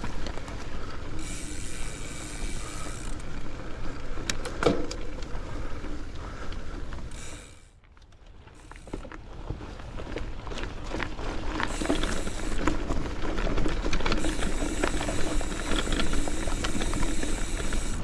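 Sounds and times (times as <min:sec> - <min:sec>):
bike rattles: 0:00.0 - 0:18.0
bike tyres rolling on dirt: 0:00.0 - 0:18.0.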